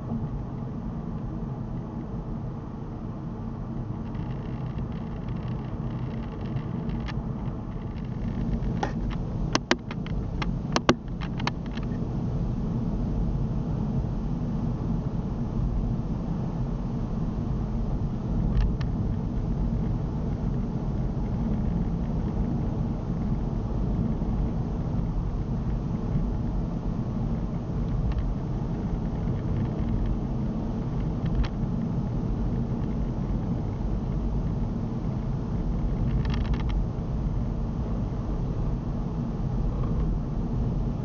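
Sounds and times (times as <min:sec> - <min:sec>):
car interior driving rumble: 0:00.0 - 0:41.0
faint ticks and rattles: 0:03.7 - 0:12.0, 0:18.3 - 0:38.0.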